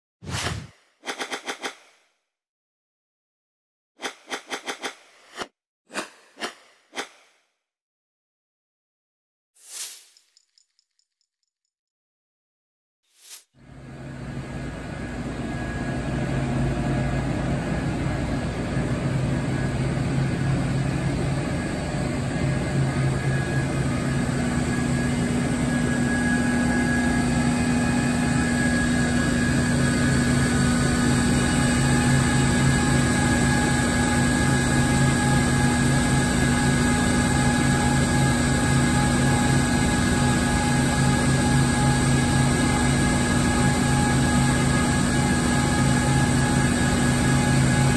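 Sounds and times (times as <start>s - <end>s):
machining center humming: 13.8s - 47.9s.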